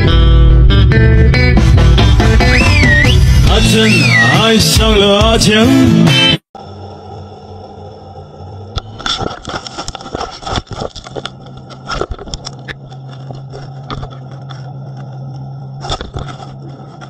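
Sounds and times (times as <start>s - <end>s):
low steady hum: 6.6s - 17.0s.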